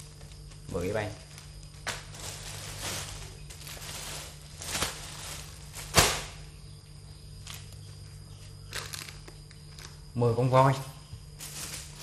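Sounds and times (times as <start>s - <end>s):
foil and plastic crinkling: 0.0s - 6.5s, 8.6s - 10.0s, 11.3s - 12.0s
steady low hum: 0.0s - 12.0s.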